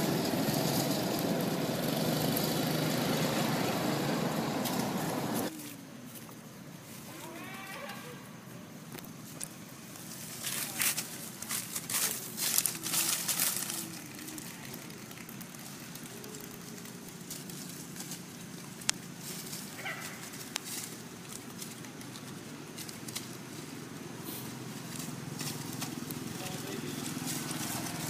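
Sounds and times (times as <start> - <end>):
low outdoor background: 0.0 - 28.0
dry leaves rustling and crackling: 8.8 - 28.0.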